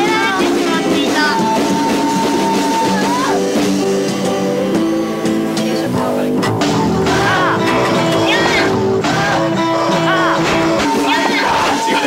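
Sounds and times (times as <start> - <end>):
rock song with vocals and piano: 0.0 - 12.0.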